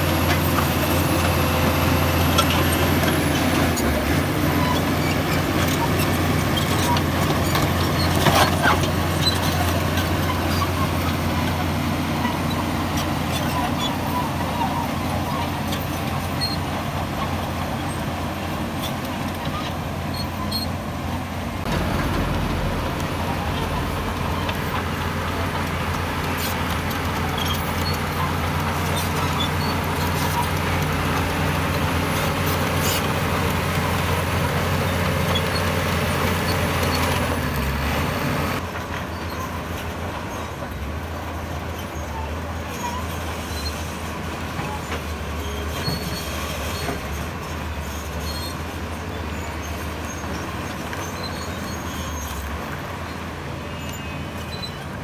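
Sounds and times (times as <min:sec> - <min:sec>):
diesel engine drone: 0:00.0 - 0:41.8
loud rushing noise: 0:21.6 - 0:26.9.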